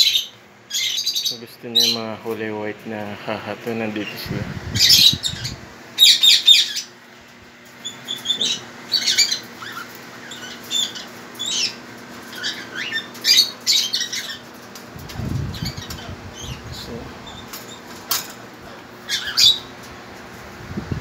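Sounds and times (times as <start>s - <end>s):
parrots squawking and chirping: 0.0s - 2.0s, 4.8s - 7.0s, 7.8s - 19.8s.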